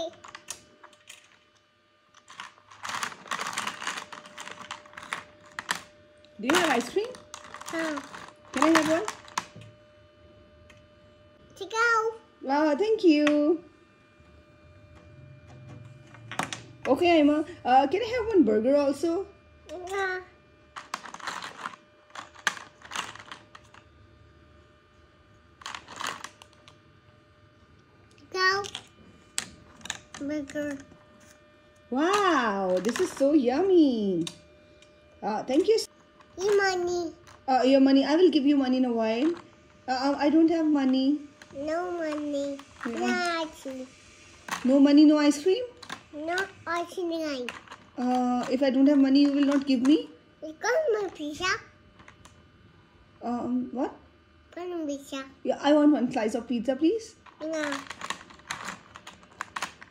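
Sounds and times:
plastic toy pieces clattering: 0:02.2 - 0:05.9, 0:06.5 - 0:09.5, 0:20.8 - 0:23.8, 0:25.6 - 0:26.6, 0:32.1 - 0:33.2, 0:47.4 - 0:48.6, 0:57.2 - 0:59.9.

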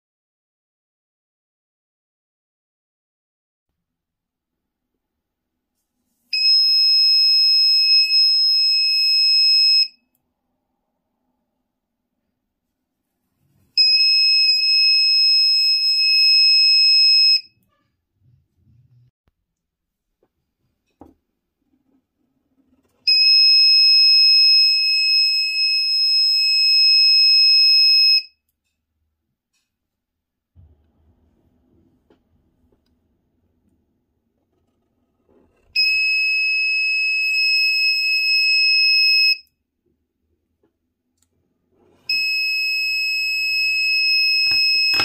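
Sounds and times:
shrill alarm buzzer: 0:42.1 - 0:45.0.

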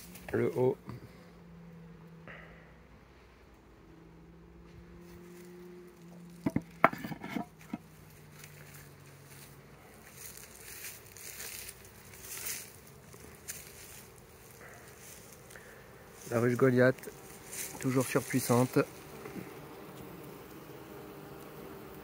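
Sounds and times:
rustling of grass and leaves: 0:00.0 - 0:01.3, 0:04.6 - 0:22.0
bee buzzing: 0:00.0 - 0:22.0
sharp clicks and knocks: 0:06.4 - 0:07.8.

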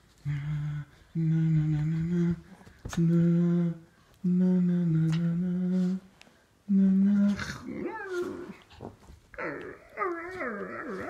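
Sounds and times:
man humming low notes: 0:00.2 - 0:06.1, 0:06.7 - 0:08.6.

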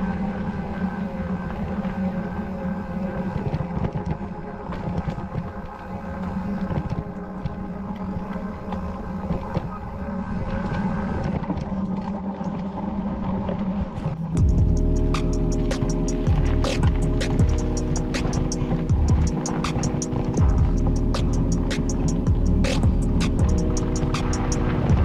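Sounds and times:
wind on microphone: 0:00.0 - 0:25.0
bike tyres rumbling on dirt trail: 0:16.2 - 0:21.4.

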